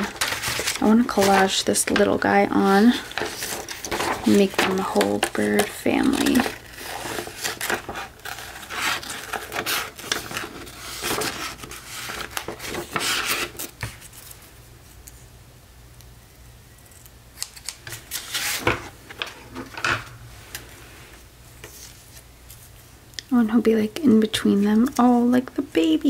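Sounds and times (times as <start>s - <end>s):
paper rustling: 0.0s - 14.5s, 17.6s - 19.8s.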